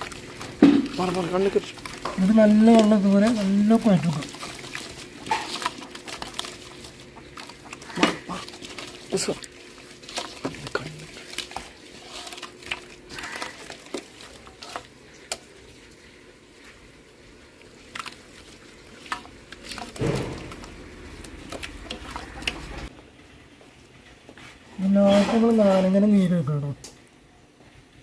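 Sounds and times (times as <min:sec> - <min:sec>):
hand kneading wet paste: 0:00.0 - 0:16.7, 0:17.5 - 0:22.9.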